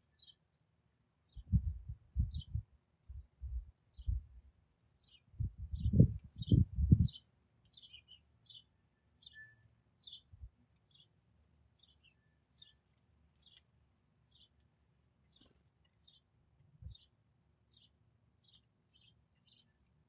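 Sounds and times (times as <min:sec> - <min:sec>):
sparrow chirping: 0:00.1 - 0:00.4, 0:01.3 - 0:04.2, 0:05.0 - 0:11.1, 0:11.8 - 0:13.6, 0:14.3 - 0:14.6, 0:15.3 - 0:17.1, 0:17.7 - 0:19.9.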